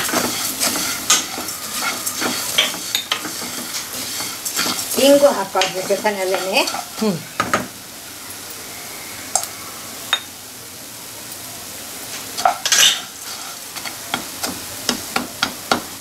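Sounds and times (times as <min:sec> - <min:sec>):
spatula scraping seeds in wok: 0:00.0 - 0:07.4, 0:12.1 - 0:14.7
faint steady hiss: 0:00.0 - 0:16.0.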